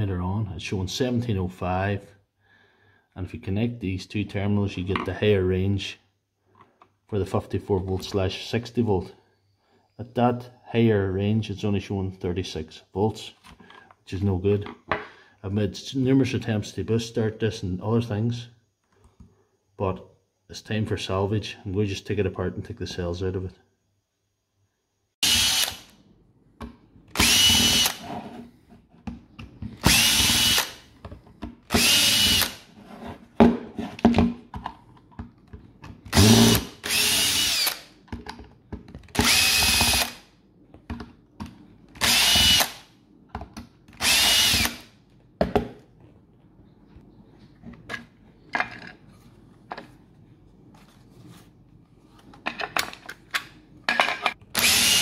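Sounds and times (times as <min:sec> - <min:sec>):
cordless drill motor whine: 0:25.2 - 0:25.9, 0:27.2 - 0:28.1, 0:29.9 - 0:30.8, 0:31.8 - 0:32.6, 0:36.1 - 0:37.8, 0:39.2 - 0:40.2, 0:42.0 - 0:42.8, 0:44.0 - 0:44.8, 0:54.6 - 0:55.0.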